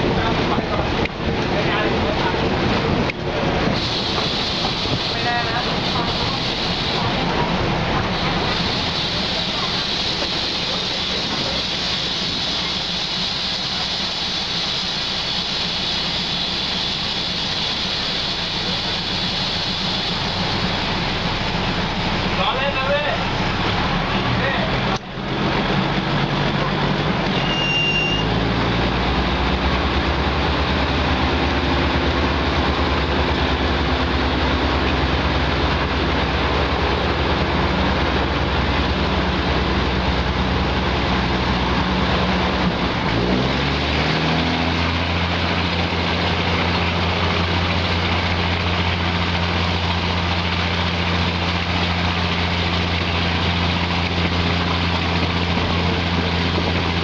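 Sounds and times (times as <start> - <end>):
diesel railcar engine running: 0.0 - 57.0
short high tone: 27.3 - 28.3.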